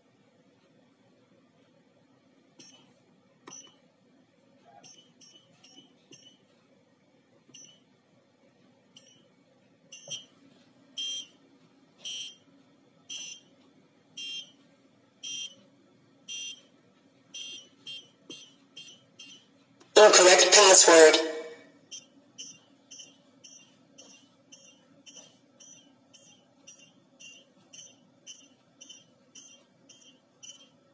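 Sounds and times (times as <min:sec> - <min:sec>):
steady electronic beeping: 0:20.0 - 0:30.8.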